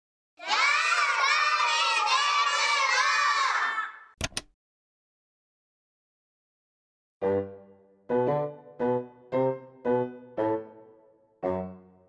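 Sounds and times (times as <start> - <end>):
children shouting together: 0.4 - 4.2.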